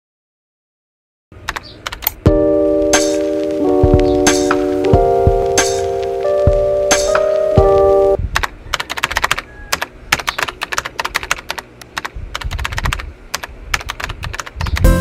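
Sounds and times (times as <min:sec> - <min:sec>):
computer keyboard typing: 0:01.5 - 0:02.4, 0:06.5 - 0:14.9
held music chord: 0:02.3 - 0:08.2.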